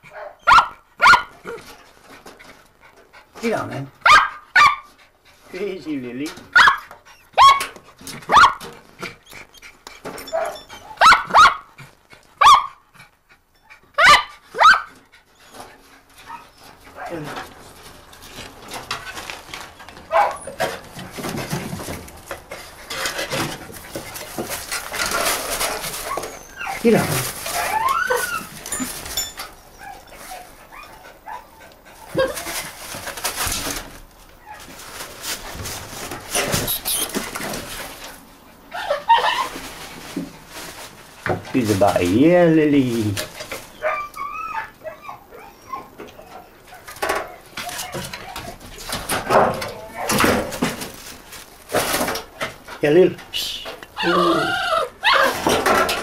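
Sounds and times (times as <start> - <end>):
terrier barking sharp yaps: 0.1 - 1.4, 4.0 - 4.9, 6.5 - 8.6, 10.3 - 11.7, 12.4 - 12.8, 14.0 - 15.0, 20.1 - 20.5
dog whining and yipping: 6.5 - 11.7, 12.4 - 12.9, 13.5 - 16.8, 25.7 - 32.5, 36.5 - 37.2, 38.7 - 39.6, 43.7 - 48.6, 54.0 - 55.6
dog rustling through debris: 14.8 - 30.8, 31.9 - 44.8, 45.9 - 54.2, 54.8 - 56.0.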